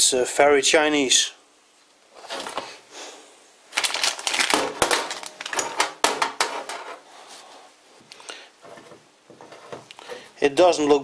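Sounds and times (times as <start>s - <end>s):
plastic packaging crinkling: 3.7s - 6.8s.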